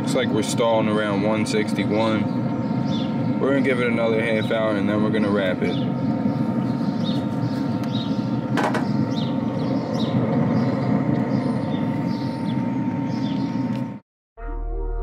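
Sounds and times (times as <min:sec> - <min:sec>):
grill fan humming: 0:00.0 - 0:14.0
bird chirps: 0:01.8 - 0:04.7, 0:05.4 - 0:13.8.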